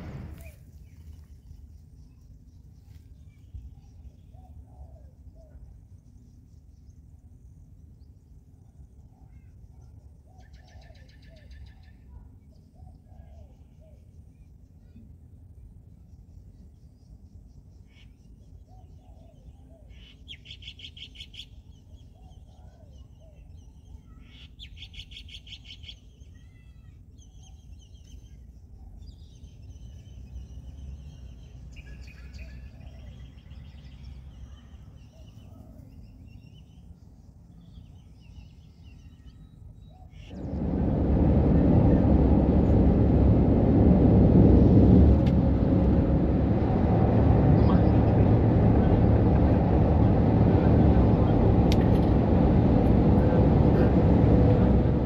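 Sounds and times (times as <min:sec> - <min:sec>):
heavy truck engine: 0:00.0 - 0:00.5, 0:40.3 - 0:55.0
low steady rumble: 0:00.0 - 0:10.5, 0:39.5 - 0:55.0.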